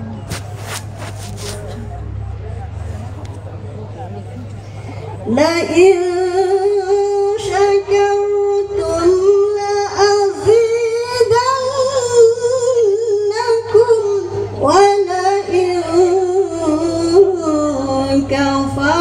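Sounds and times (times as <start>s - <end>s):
woman reciting melodically over loudspeaker: 5.3s - 19.0s.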